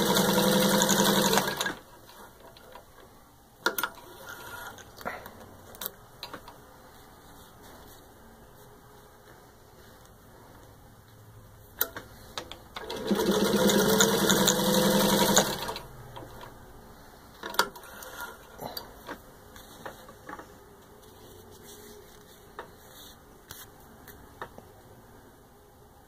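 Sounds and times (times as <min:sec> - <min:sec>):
sewing machine motor running: 0:00.0 - 0:01.8, 0:12.8 - 0:15.8.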